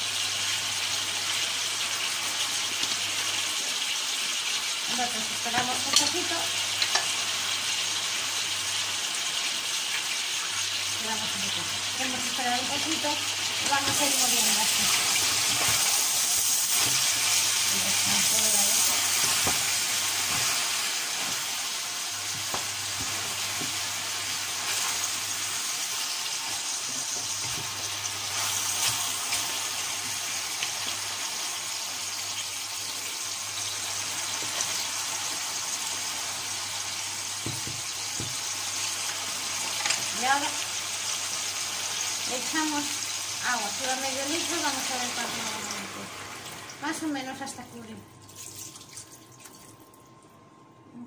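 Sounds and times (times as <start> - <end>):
meat and vegetables sizzling in pan: 0.0 - 47.9
wooden spoon knocking on pan: 37.4 - 38.4.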